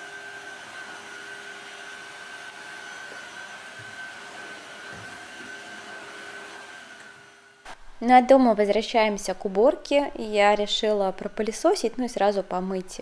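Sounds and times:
cordless vacuum whining: 0.0 - 7.6.

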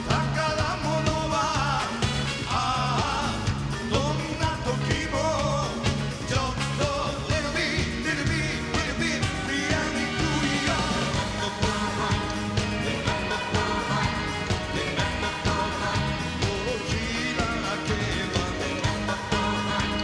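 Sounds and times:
man singing into microphone: 0.0 - 12.0, 16.3 - 20.0
live band playing soul-pop: 0.0 - 20.0
steady drum beat: 0.0 - 20.0.

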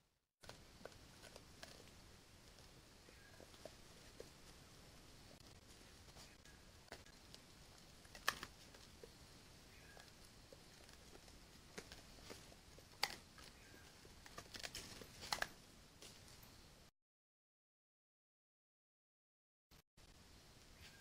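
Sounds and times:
animal foraging in dry leaves: 0.4 - 15.6
faint steady hiss: 0.4 - 16.9, 20.0 - 21.0.

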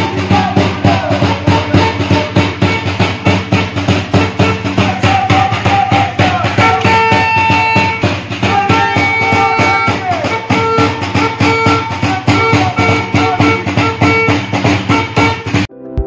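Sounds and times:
drum beat: 0.0 - 15.7.

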